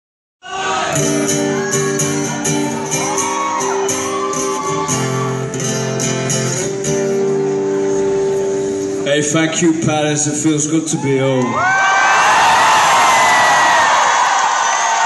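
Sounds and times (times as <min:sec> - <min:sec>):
strummed acoustic guitar: 0:00.9 - 0:09.4
live rock band playing: 0:01.0 - 0:09.1.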